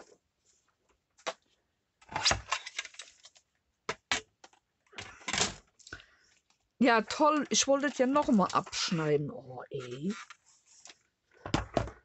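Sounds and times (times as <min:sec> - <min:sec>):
paper rustling: 0:02.2 - 0:03.5, 0:05.4 - 0:11.2.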